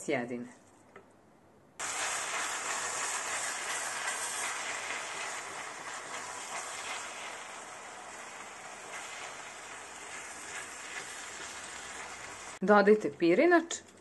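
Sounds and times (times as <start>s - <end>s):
meat sizzling in a pan: 1.8s - 12.6s
wooden spoon stirring: 1.9s - 14.0s.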